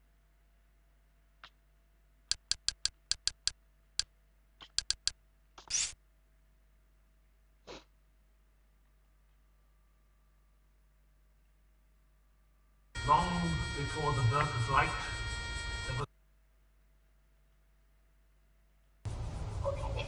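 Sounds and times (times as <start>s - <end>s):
hiss-like sound: 19.1s - 20.0s.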